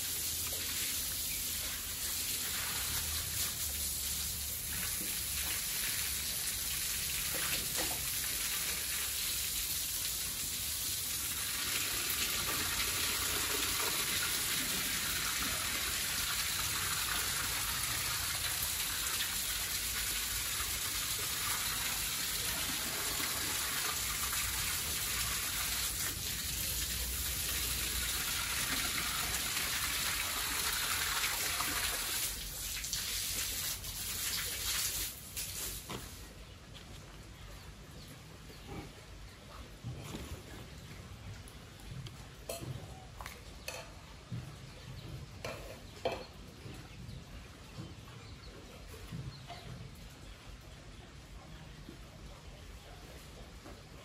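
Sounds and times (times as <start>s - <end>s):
water spraying from hose: 0.0s - 36.3s
water splashing on concrete: 16.0s - 36.3s.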